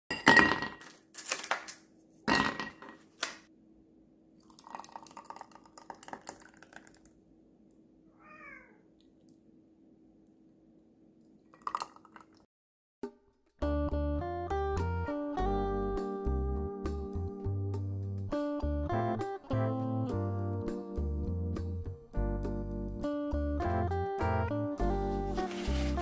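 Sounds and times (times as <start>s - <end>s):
thick juice pouring over ice: 4.4s - 7.1s, 11.5s - 12.4s.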